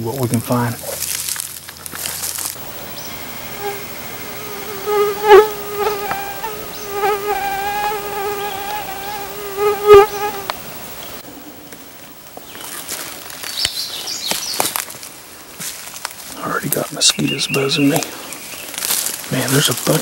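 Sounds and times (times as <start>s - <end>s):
mosquito buzzing: 2.6s - 11.2s.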